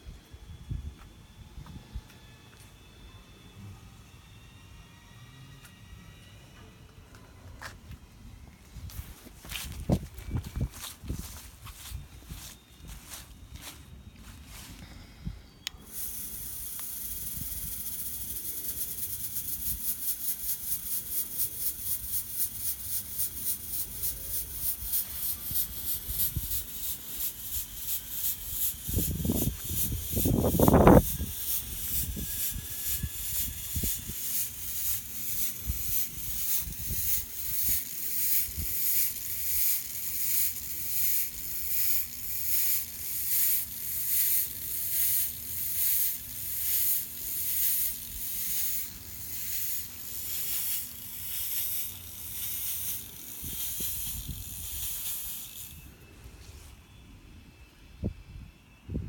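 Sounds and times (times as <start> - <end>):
fog machine hissing: 14.4 - 56.0.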